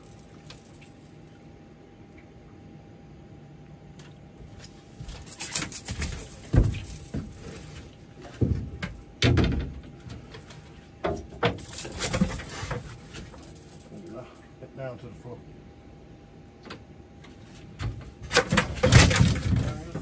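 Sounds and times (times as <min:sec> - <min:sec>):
fishing gear knocking and clattering: 0:05.0 - 0:07.6, 0:11.2 - 0:14.0, 0:18.3 - 0:20.0.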